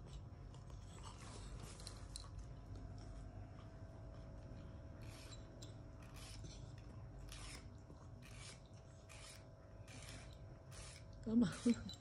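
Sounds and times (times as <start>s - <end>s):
nail file rasping on claws: 5.0s - 12.0s.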